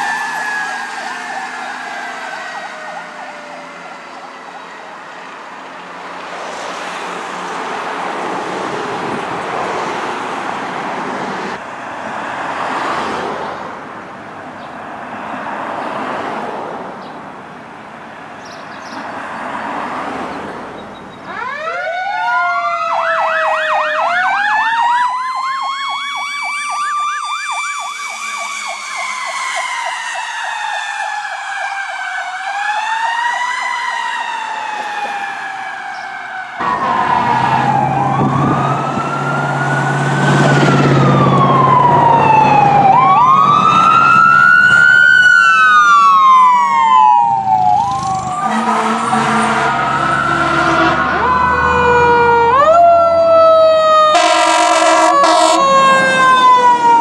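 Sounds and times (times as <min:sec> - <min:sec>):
fire truck sirens wailing: 0:00.0 - 0:16.5, 0:19.2 - 0:57.0
truck engine rumbling: 0:36.3 - 0:57.0.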